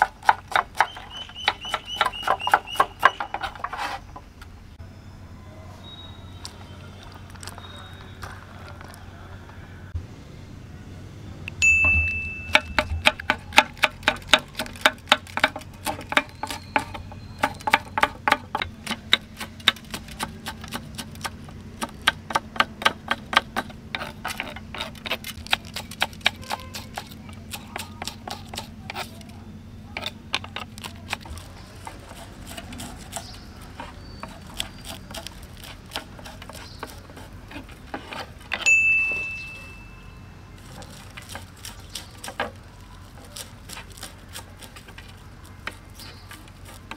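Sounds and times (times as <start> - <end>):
knife chopping on wooden block: 0.0 - 3.8, 12.5 - 29.2, 30.0 - 38.6.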